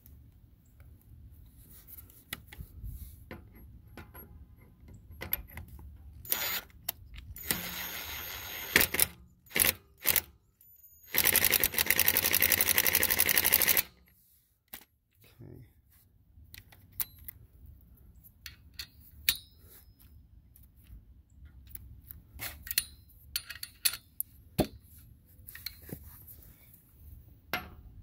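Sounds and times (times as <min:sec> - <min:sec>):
impact driver whining: 0:07.4 - 0:10.2.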